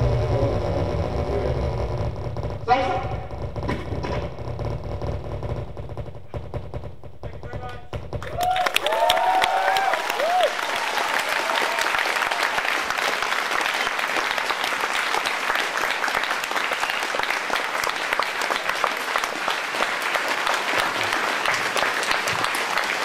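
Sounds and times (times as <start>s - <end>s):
audience applauding: 8.2s - 23.0s.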